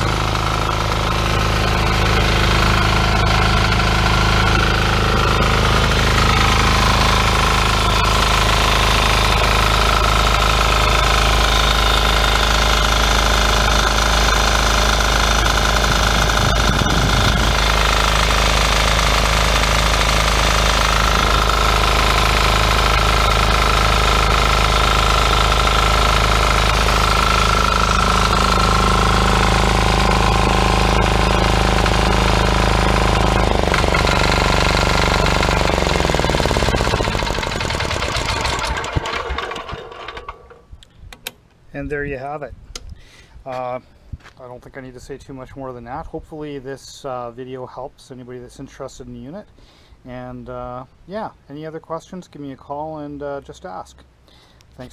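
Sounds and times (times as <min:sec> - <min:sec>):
diesel engine running: 0:00.0 - 0:40.8.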